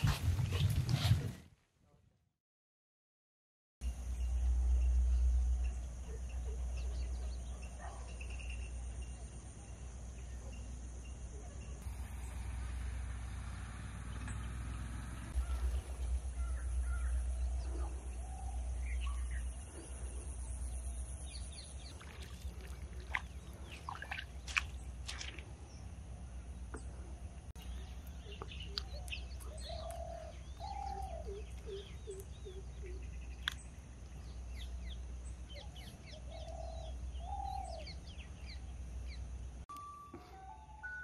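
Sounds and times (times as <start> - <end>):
wild birds chirping: 3.8 - 41.0
steady low rumble: 11.7 - 39.6.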